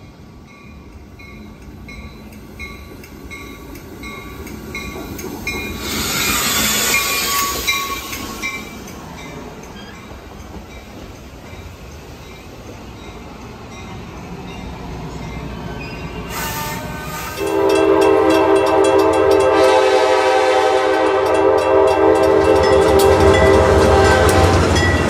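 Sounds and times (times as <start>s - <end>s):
train rumble: 0.0s - 25.0s
train air horn chord: 16.3s - 24.8s.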